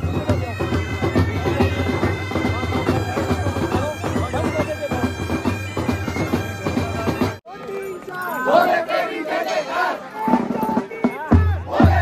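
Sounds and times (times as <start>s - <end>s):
bagpipes playing a tune: 0.0s - 7.4s
crowd voices: 0.0s - 12.0s.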